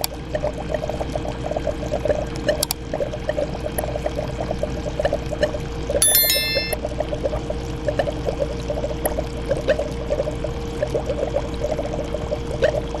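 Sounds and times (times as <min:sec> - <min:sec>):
aquarium water bubbling: 0:00.2 - 0:05.8, 0:07.0 - 0:13.0
short bright chime: 0:06.0 - 0:06.8.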